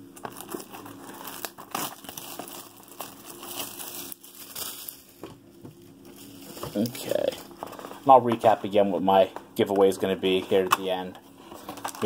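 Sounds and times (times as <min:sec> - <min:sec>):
plastic shrink wrap tearing and crinkling: 0:00.1 - 0:05.3, 0:06.0 - 0:08.1, 0:11.6 - 0:12.0.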